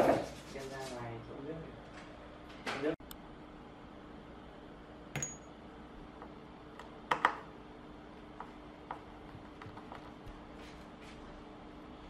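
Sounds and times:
faint steady hum: 1.1s - 12.0s.

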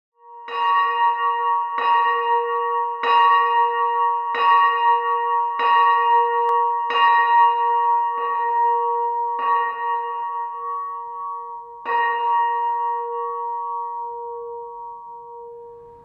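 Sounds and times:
church bell ringing: 0.2s - 16.0s.

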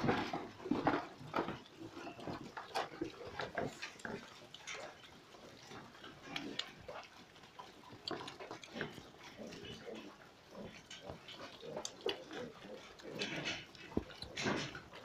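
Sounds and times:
piglets grunting: 8.0s - 15.0s.

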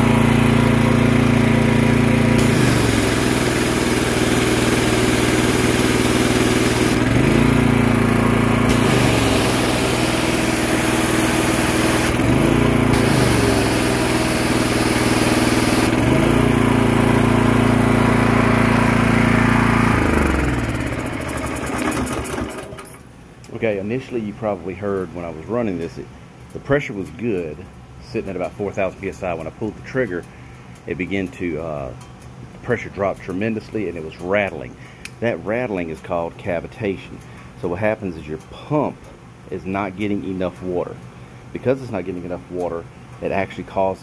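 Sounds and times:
water spray hissing: 0.0s - 16.4s
pressure washer engine running: 0.0s - 23.0s
pump rattling: 0.0s - 23.1s.

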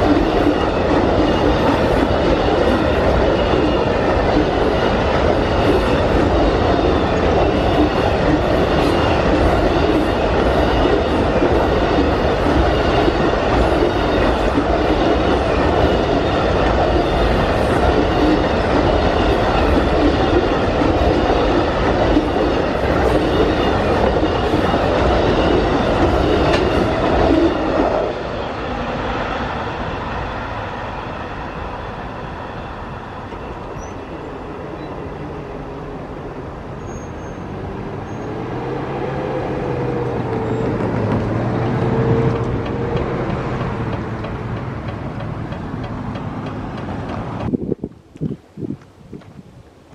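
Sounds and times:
road traffic: 0.0s - 49.1s
train cars rumbling past: 0.0s - 49.2s.

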